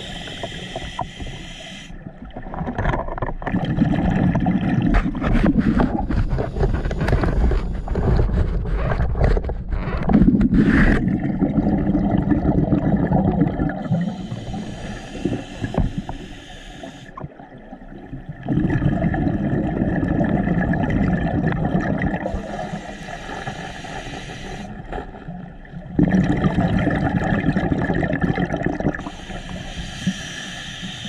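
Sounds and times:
muffled underwater rumble: 0:00.0 - 0:31.0
thin hiss: 0:29.0 - 0:31.0.

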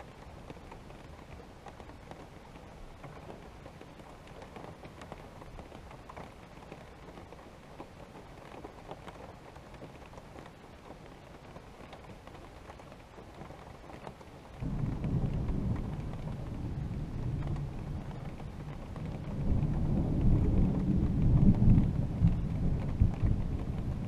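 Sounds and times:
light rain patter: 0:00.0 - 0:24.0
deep thunder rumble: 0:14.6 - 0:24.0.

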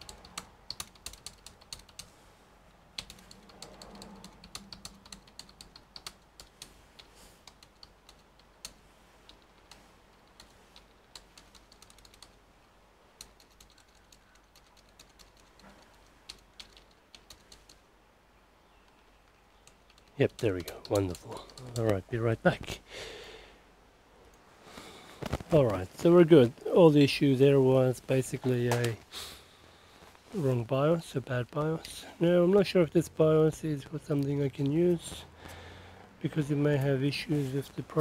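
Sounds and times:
keyboard key presses: 0:00.0 - 0:02.1, 0:03.0 - 0:12.4.

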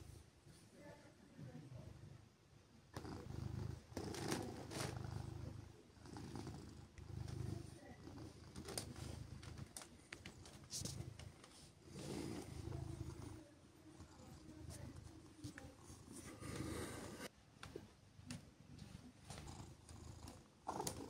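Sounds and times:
cat purring: 0:02.9 - 0:17.3, 0:19.2 - 0:21.0
rustling: 0:08.3 - 0:13.4.

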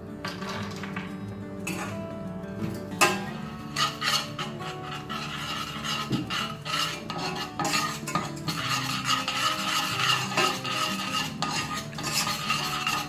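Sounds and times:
spoon scraping a metal saucepan: 0:01.7 - 0:02.1, 0:03.0 - 0:13.0.

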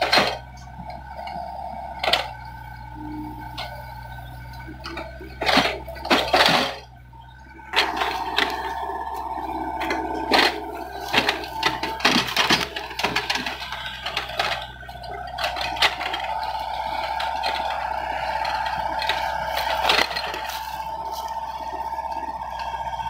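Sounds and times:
mini excavator engine whine: 0:00.0 - 0:23.0.

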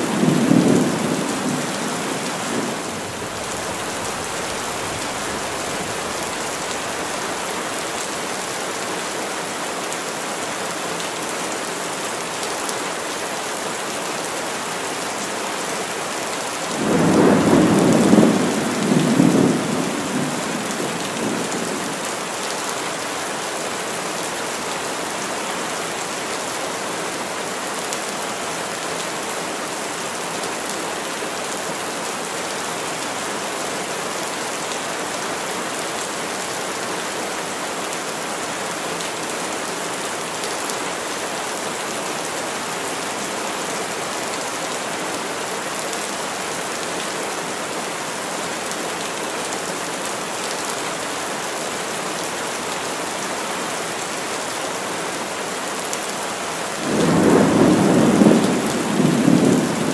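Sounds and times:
heavy rain falling: 0:00.0 - 0:59.9
thunder rumbling: 0:16.8 - 0:21.8, 0:56.8 - 0:59.9.

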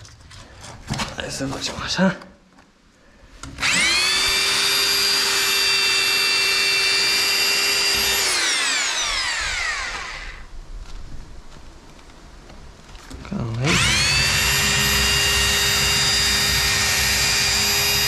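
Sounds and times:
rotary hammer drill whine: 0:03.6 - 0:10.5, 0:13.6 - 0:18.0.

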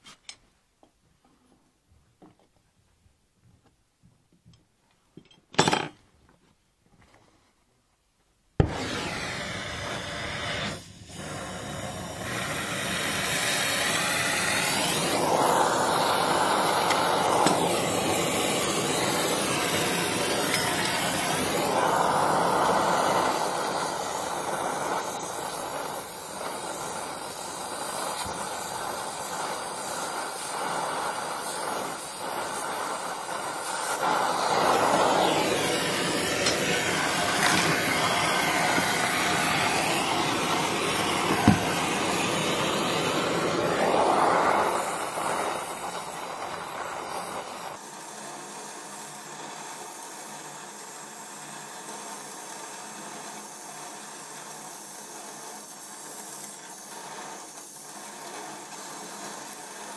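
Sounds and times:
gas torch flame hissing: 0:08.6 - 0:59.9.

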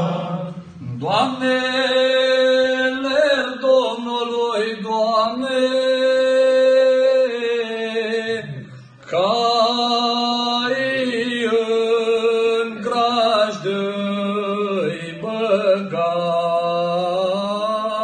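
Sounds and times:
man singing unaccompanied: 0:00.0 - 0:18.0.

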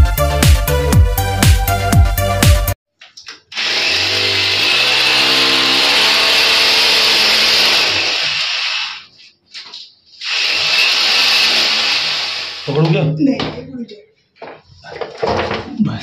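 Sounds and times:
background music: 0:00.0 - 0:02.8
electric drill boring into wall: 0:03.5 - 0:09.1, 0:10.2 - 0:12.8.

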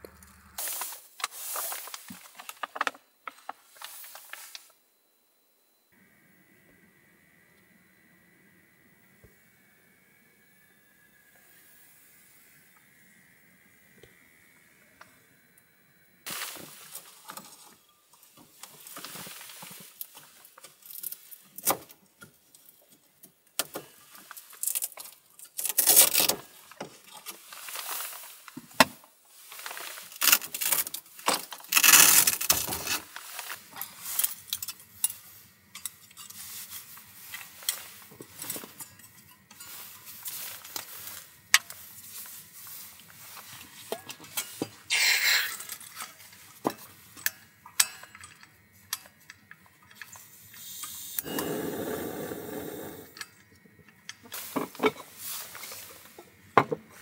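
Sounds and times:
small metal and plastic clinks: 0:33.7 - 0:41.9, 0:45.4 - 0:51.0.

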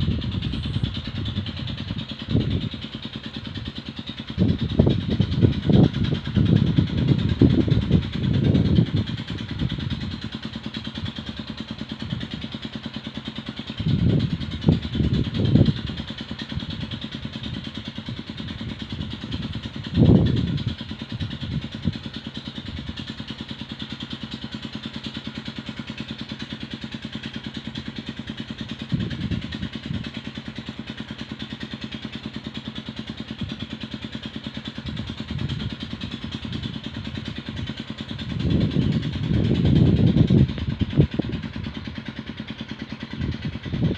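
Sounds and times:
low rumbles: 0:00.0 - 0:12.6, 0:13.6 - 0:23.0, 0:28.8 - 0:30.3, 0:34.6 - 0:43.9
engine running: 0:00.0 - 0:43.9.

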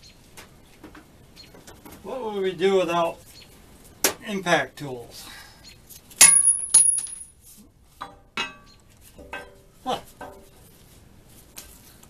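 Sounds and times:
metal nuts and washers clinking: 0:06.2 - 0:07.4.

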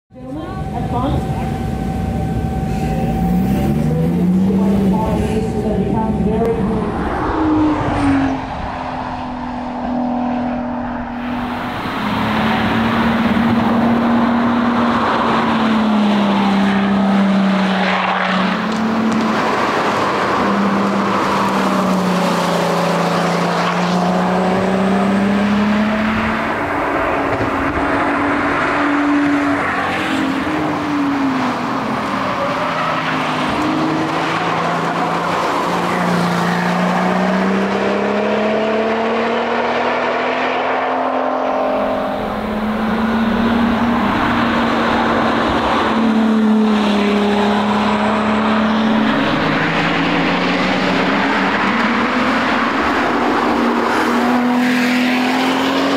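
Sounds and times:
car engine revving through bends: 0:00.2 - 0:55.9.

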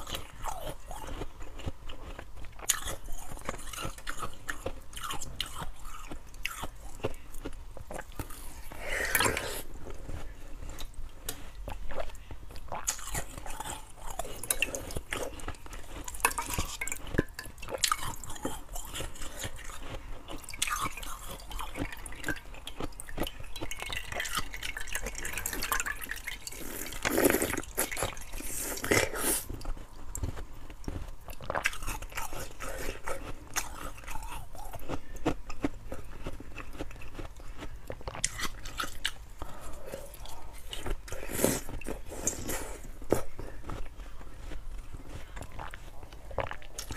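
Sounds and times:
water dripping into glass bowl: 0:23.2 - 0:26.6
sucking on ice: 0:25.2 - 0:29.6.

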